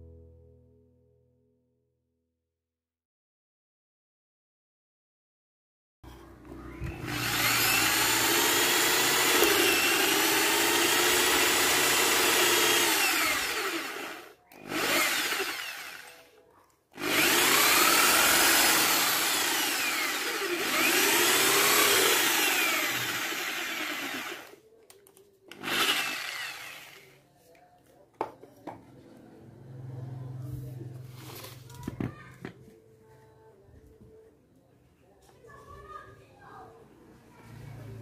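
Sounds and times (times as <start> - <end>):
electric drill boring into wood: 6.8 - 16.3, 17.0 - 24.6, 25.5 - 27.2.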